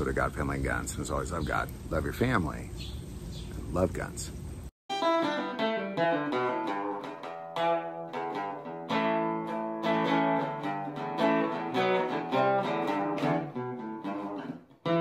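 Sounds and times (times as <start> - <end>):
fingerpicked acoustic guitar: 5.0 - 15.0.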